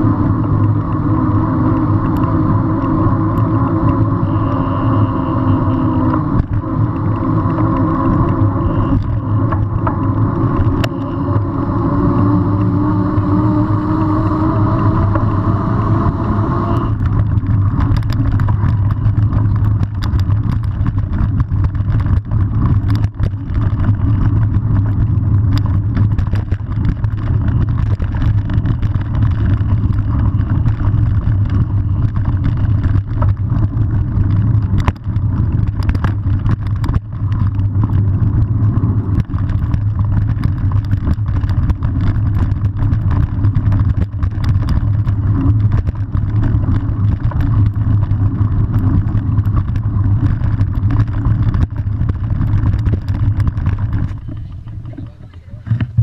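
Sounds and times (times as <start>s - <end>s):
bike road rumble: 0.0s - 56.0s
wind on microphone: 0.0s - 56.0s
bike knocks and rattles: 5.8s - 11.3s, 16.9s - 56.0s.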